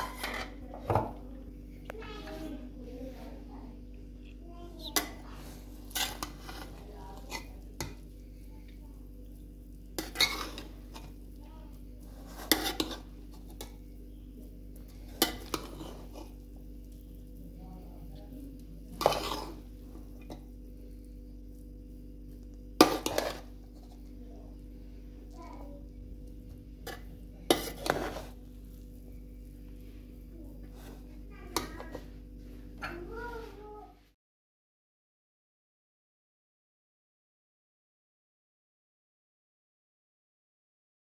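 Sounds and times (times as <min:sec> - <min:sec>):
metal utensil scraping a pan: 0:00.0 - 0:00.6, 0:04.9 - 0:08.0, 0:09.9 - 0:11.2, 0:12.0 - 0:13.8, 0:14.8 - 0:16.4, 0:18.9 - 0:20.4, 0:22.8 - 0:24.1, 0:26.8 - 0:28.8, 0:30.6 - 0:32.0
steady low hum: 0:00.0 - 0:33.8.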